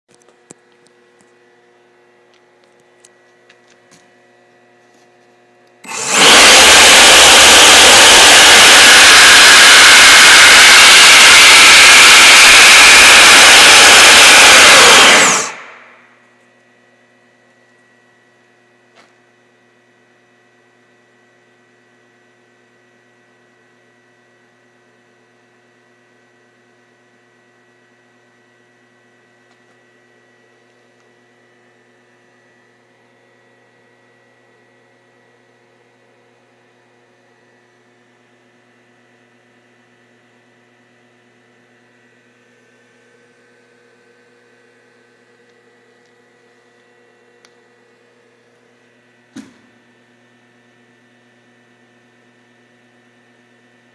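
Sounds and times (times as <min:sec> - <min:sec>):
compressor rush of air: 0:05.8 - 0:16.0
small click: 0:46.8 - 0:47.6.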